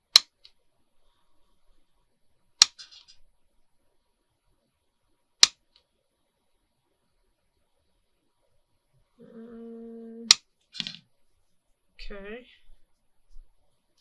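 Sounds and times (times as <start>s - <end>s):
lace rustling: 2.7s - 3.2s.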